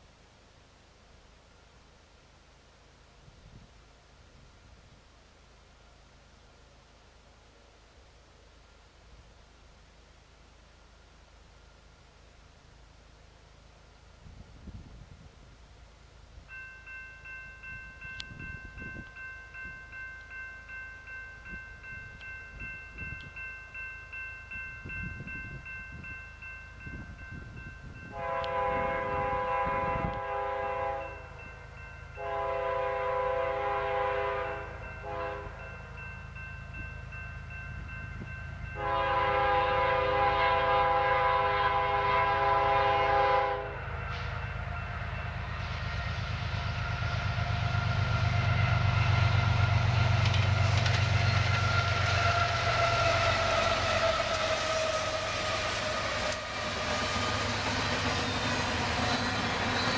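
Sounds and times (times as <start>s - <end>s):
train rumble: 1.0s - 59.9s
crossing bell ringing: 16.5s - 29.6s, 30.3s - 33.0s, 34.0s - 39.7s, 43.7s - 45.9s, 49.6s - 59.9s
locomotive air horn: 28.1s - 31.4s, 32.2s - 35.6s, 38.8s - 44.4s, 51.5s - 58.3s.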